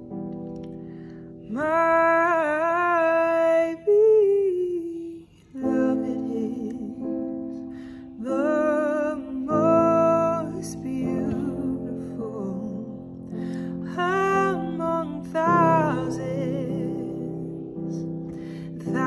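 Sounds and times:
woman singing: 1.5 - 7.3, 8.2 - 18.1, 18.7 - 19.0
soft instrumental accompaniment: 5.4 - 19.0.

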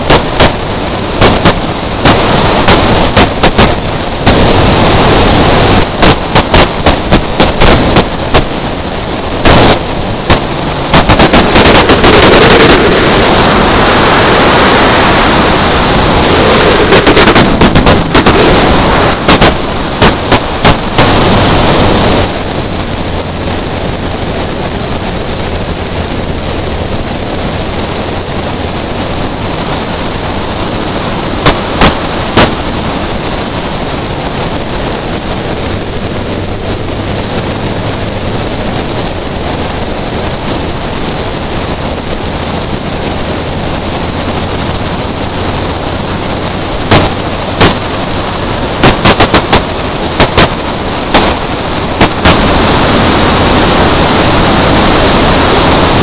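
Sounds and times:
sharp cracks: 0.0 - 22.8, 31.2 - 33.0, 46.8 - 55.0
wind rushing on microphone: 0.0 - 56.0.

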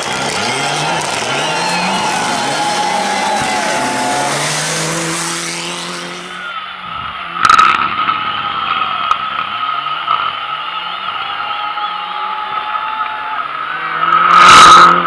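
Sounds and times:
gravel spray and tyre noise: 0.0 - 6.6
rally car engine revving: 0.0 - 6.6, 13.4 - 15.0
distant rally car engine revving: 0.0 - 10.4, 13.4 - 15.0.

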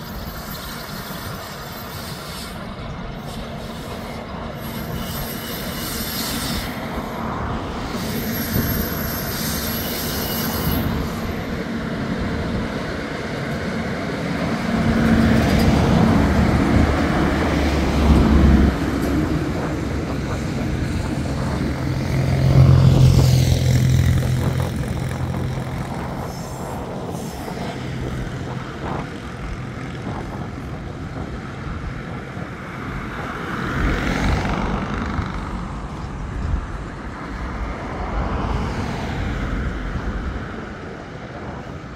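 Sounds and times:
high wheel squeal: 0.0 - 11.9
diesel locomotive engines humming: 0.0 - 38.5
train wheels on rail: 0.0 - 41.9.

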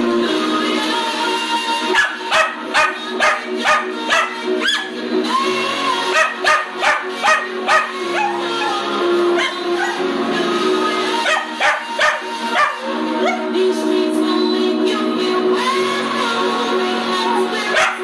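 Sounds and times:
song playing: 0.0 - 18.0
puppy yelping: 2.0 - 5.0, 6.2 - 8.6, 11.2 - 13.4.

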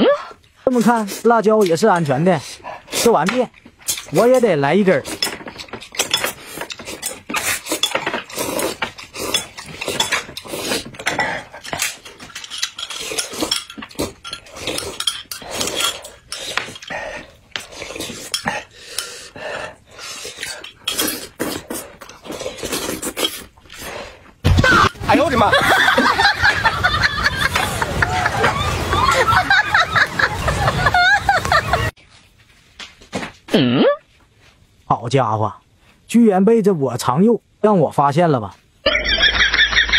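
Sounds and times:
slurping and chewing: 2.4 - 4.2, 5.0 - 24.4.

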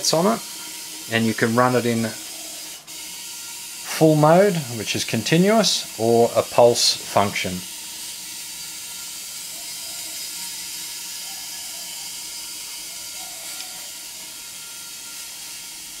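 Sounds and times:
high-pitched hiss: 0.0 - 2.9.

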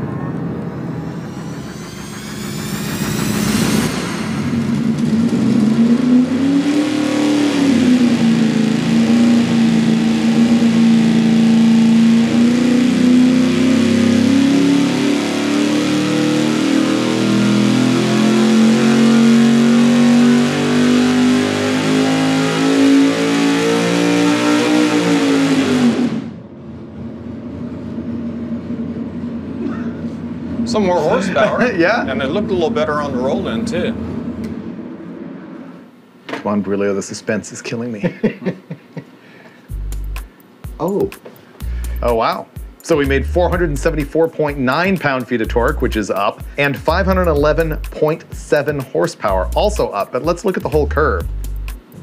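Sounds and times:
engine revving under load: 0.0 - 36.0.

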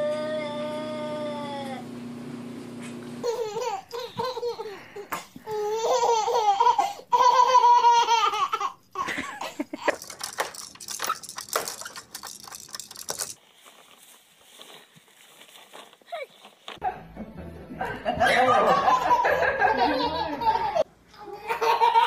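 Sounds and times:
baby laughing and squealing: 3.2 - 12.6
knocks and rustles: 9.8 - 14.8.

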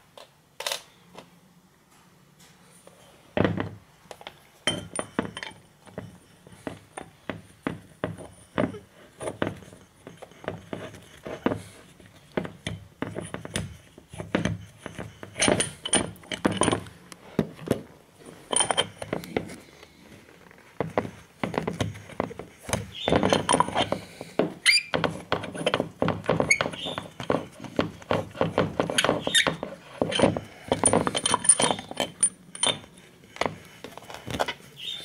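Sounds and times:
metal clinking on metal: 4.6 - 11.6, 12.4 - 17.0, 18.4 - 19.4, 22.9 - 24.0, 25.0 - 33.0
metal knocking on wood: 12.3 - 17.8, 20.8 - 33.6
short squeak: 24.6 - 25.0.

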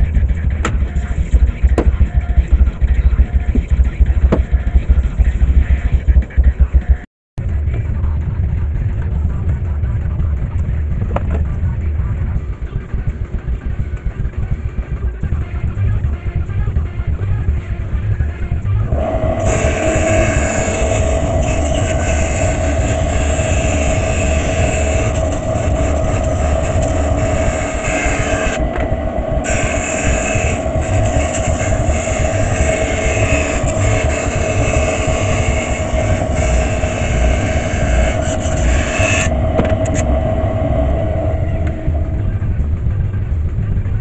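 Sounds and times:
bandsaw motor whining: 18.7 - 43.2.

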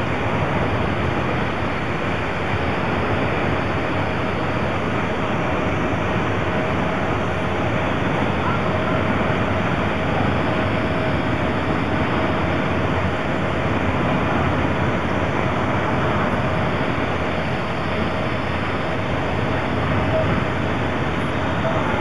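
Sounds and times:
locomotive rumble and hiss: 0.0 - 22.0
faint high tone: 21.6 - 22.0.

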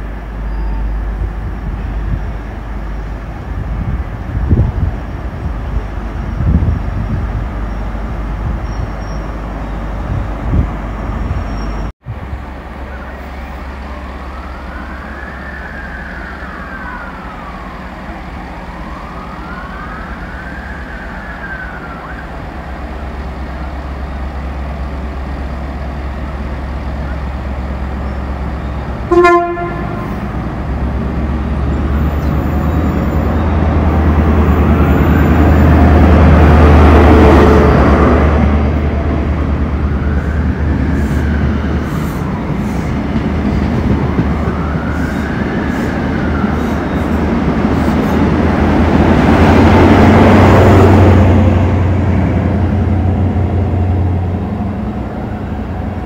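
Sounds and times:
emergency siren wailing: 12.9 - 24.0, 29.0 - 56.0
short horn toot: 29.1 - 30.2.

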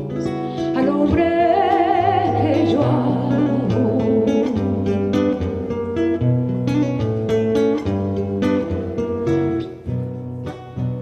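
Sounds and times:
classical guitar playing: 0.0 - 11.0.

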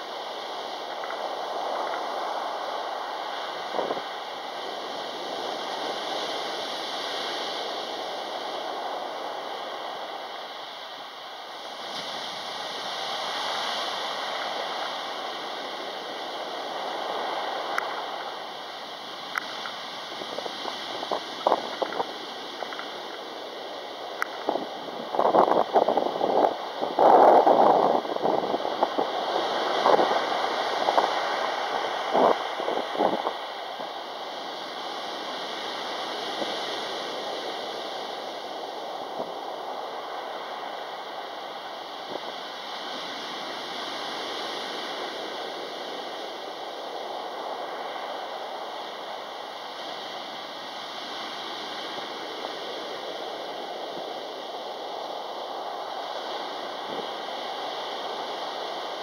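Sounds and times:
waves washing on pebble beach: 0.0 - 59.0.

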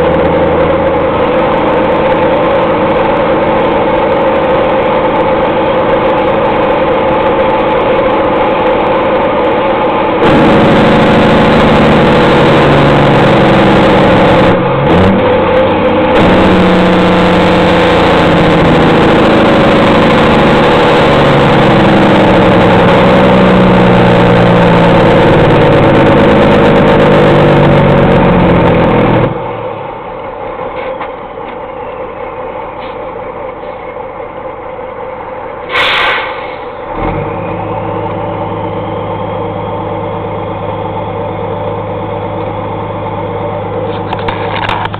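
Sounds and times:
diesel truck engine: 0.0 - 44.9
air hiss: 35.6 - 36.8.

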